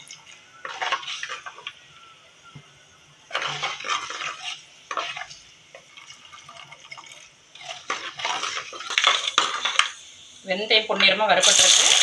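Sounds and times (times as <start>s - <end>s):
hot oil sizzling: 0.0s - 12.0s
ladle scraping clay pot: 0.6s - 1.7s, 3.3s - 9.9s.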